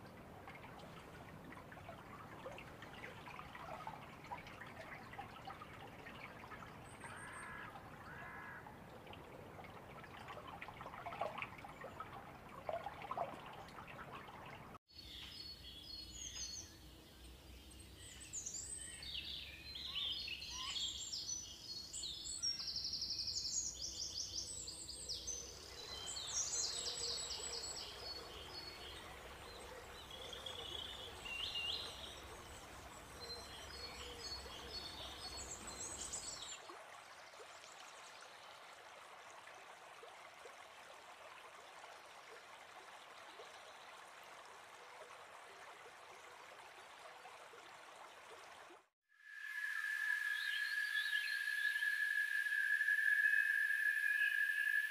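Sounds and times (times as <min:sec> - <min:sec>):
running water: 0:00.0 - 0:54.9
birds chirping and trilling: 0:49.5 - 0:54.9.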